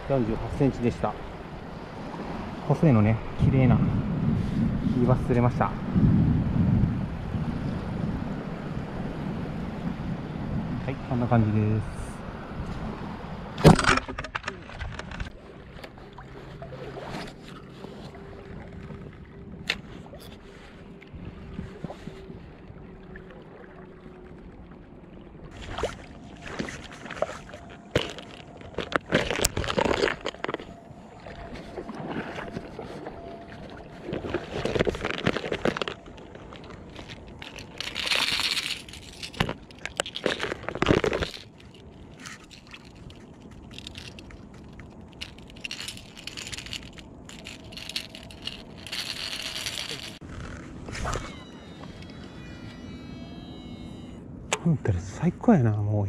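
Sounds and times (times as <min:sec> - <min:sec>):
fishing tackle rustling: 0:25.6 - 0:54.2.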